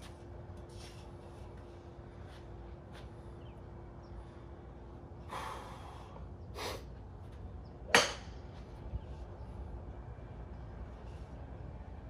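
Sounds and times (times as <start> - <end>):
golf club striking ball: 7.9 - 8.4.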